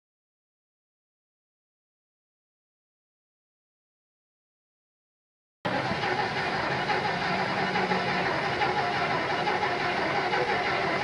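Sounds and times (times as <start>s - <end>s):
engine intake rushing: 5.7s - 11.0s.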